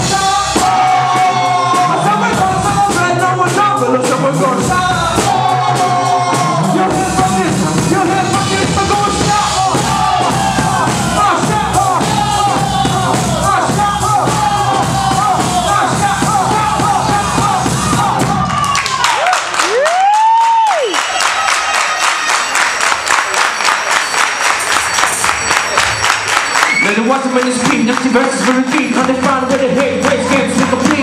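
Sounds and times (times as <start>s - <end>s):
live instrumental band music: 0.0s - 18.9s.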